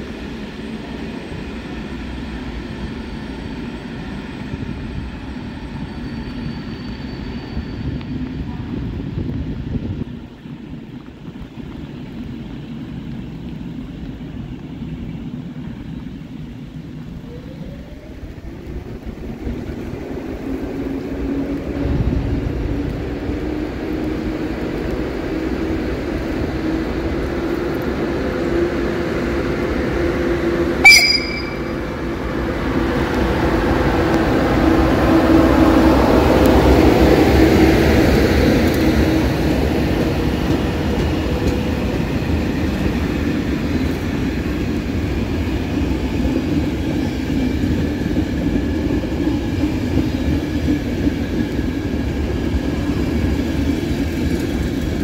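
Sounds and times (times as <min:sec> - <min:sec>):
train rumbling: 0:00.0 - 0:55.0
sharp bang: 0:30.8 - 0:31.8.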